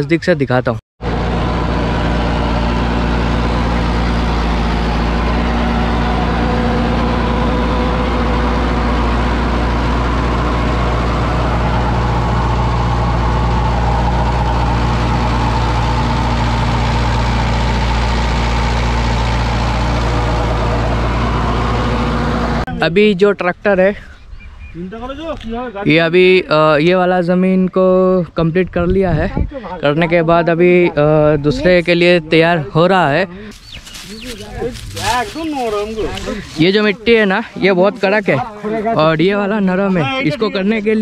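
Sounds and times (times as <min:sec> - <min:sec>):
tractor diesel engine running: 0:01.0 - 0:22.7, 0:33.0 - 0:41.0
tiller blades churning soil: 0:33.5 - 0:38.9.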